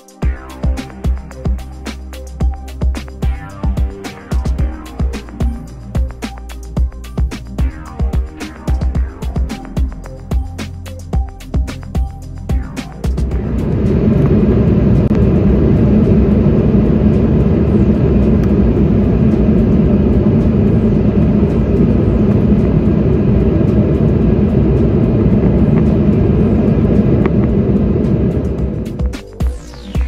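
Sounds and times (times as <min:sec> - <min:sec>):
jet cabin engine rumble: 0:11.2 - 0:29.6.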